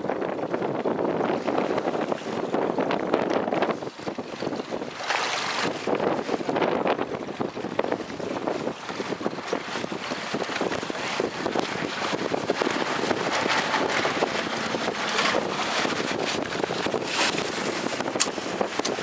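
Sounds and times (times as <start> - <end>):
choppy sea wash: 0.0 - 19.0
wind buffeting microphone: 0.0 - 19.0.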